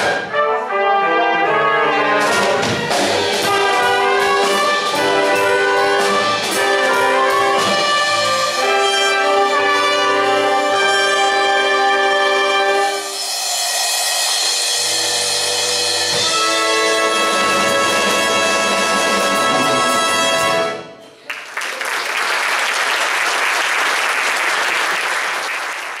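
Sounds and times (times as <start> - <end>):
orchestra sustaining a chord: 13.9 - 20.9
audience applauding: 21.2 - 26.0.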